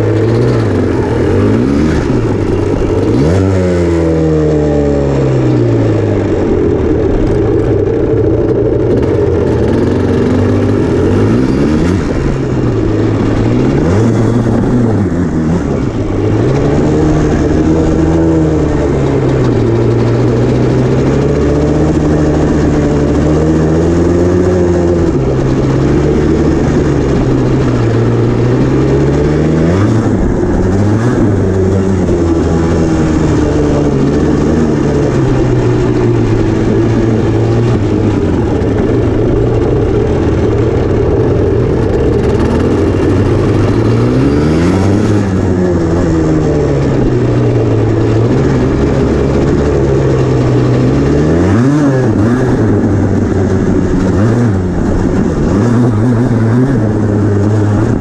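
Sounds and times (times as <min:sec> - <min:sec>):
two-stroke engine revving: 0:00.0 - 0:58.0.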